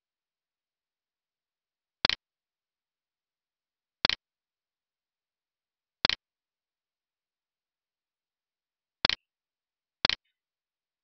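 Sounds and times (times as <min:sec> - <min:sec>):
computer mouse clicks: 0:02.0 - 0:02.3, 0:04.0 - 0:04.3, 0:06.0 - 0:06.3, 0:09.0 - 0:09.3, 0:10.0 - 0:10.4.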